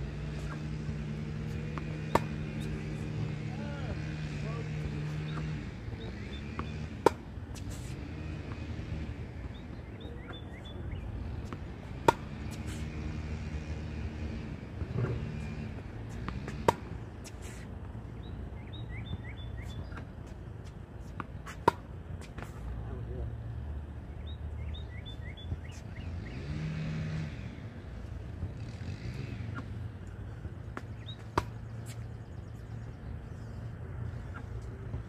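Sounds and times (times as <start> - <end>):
low engine drone: 0.0 - 20.6
tennis racket hitting ball: 0.3 - 3.5, 6.5 - 8.6, 11.4 - 12.9, 14.8 - 17.6, 21.1 - 22.6, 30.7 - 32.0
birds chirping: 1.5 - 7.0, 9.0 - 11.6, 17.4 - 20.3, 23.5 - 26.9, 30.2 - 35.0.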